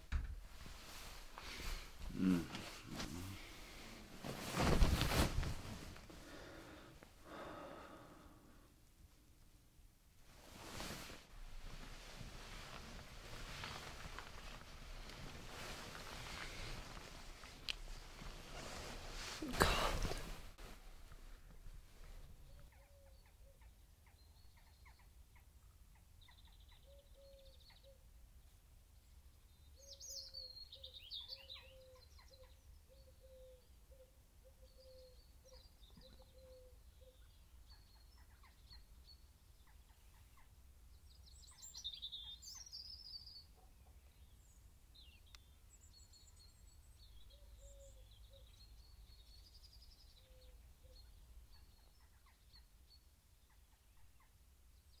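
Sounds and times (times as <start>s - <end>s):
birdsong chirps and trills: 22.4s - 55.0s.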